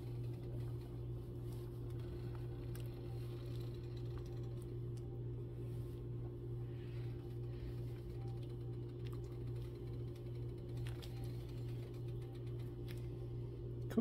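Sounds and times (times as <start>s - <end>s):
low mechanical hum: 0.0s - 14.0s.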